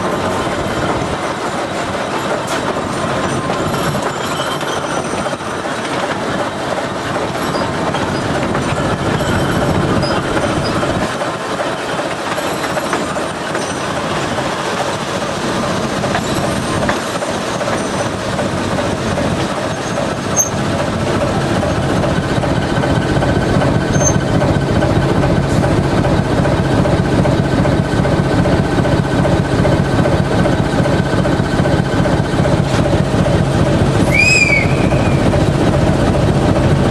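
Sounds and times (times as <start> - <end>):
diesel engine running: 0.0 - 36.9
wheels clicking over rail joints: 0.0 - 36.9
high squeal: 34.0 - 35.4.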